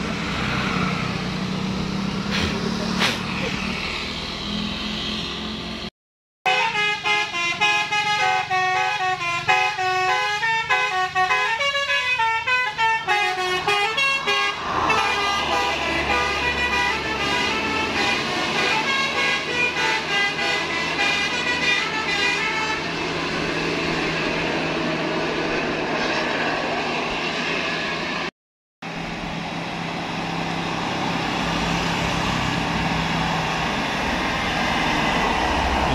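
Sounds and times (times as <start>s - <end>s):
bus engine and road noise: 0.0s - 5.9s, 6.5s - 35.9s
bus musical horn melody: 6.4s - 23.0s.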